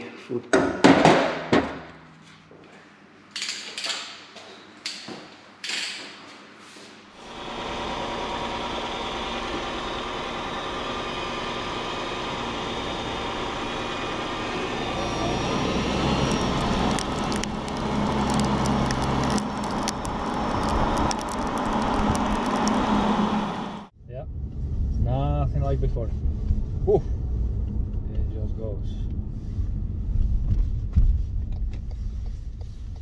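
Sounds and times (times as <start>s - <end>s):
car engine: 7.2s - 33.0s
tyre and road noise: 13.9s - 33.0s
sharp crackles and ticks: 16.2s - 22.9s.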